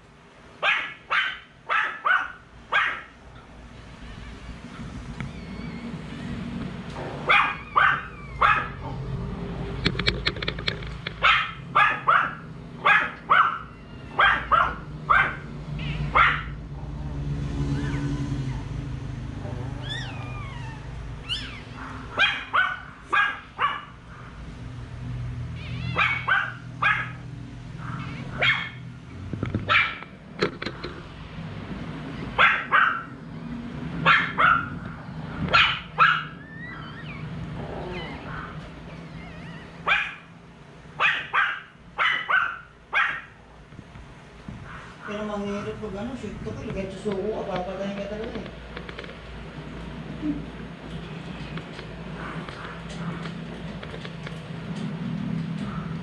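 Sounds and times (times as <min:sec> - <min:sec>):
dog barking: 0:00.6 - 0:03.2, 0:07.2 - 0:09.0, 0:11.2 - 0:16.6, 0:21.4 - 0:24.4, 0:25.9 - 0:27.2, 0:27.8 - 0:28.8, 0:29.7 - 0:30.0, 0:32.4 - 0:33.2, 0:34.0 - 0:34.8, 0:35.5 - 0:36.4, 0:39.8 - 0:40.3, 0:41.0 - 0:43.4, 0:44.6 - 0:45.1.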